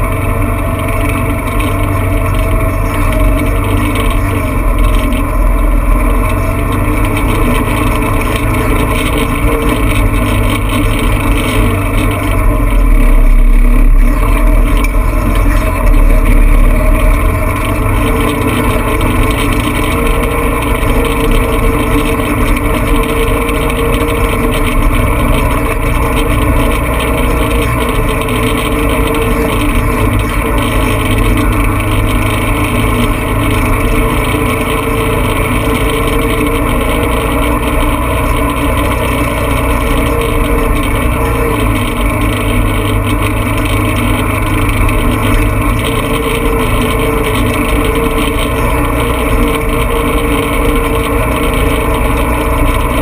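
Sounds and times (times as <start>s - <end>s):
loud low rumble: 0.0s - 53.0s
vehicle engine driving on dirt: 0.0s - 53.0s.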